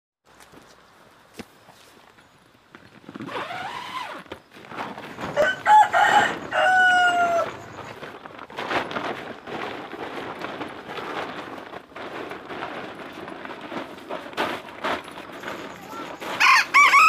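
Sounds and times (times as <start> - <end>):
rooster crowing: 5.3 - 7.7, 16.4 - 17.0.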